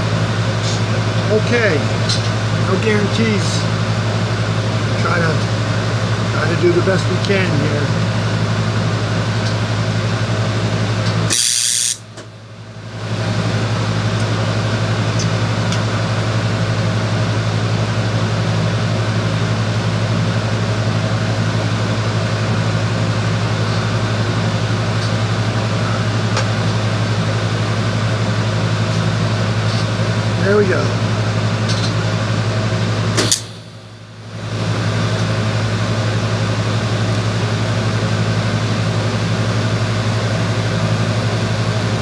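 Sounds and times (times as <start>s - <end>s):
arc welding hum and hiss: 0.0s - 42.0s
sharp welding burst: 11.3s - 12.0s.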